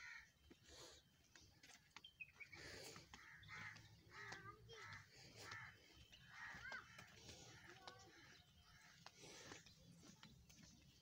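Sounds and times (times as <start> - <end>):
crow cawing: 0.0 - 0.4, 3.1 - 9.1.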